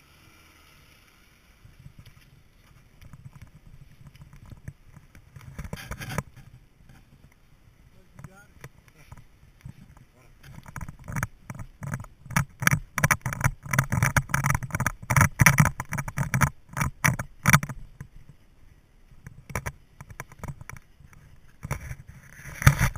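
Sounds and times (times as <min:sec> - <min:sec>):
car knocking and rattling: 0:10.4 - 0:17.8.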